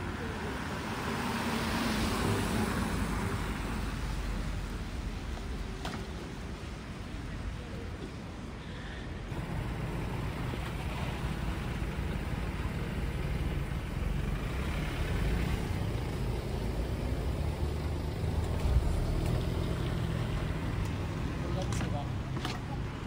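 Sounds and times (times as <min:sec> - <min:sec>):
car engine running low: 0:09.3 - 0:21.2.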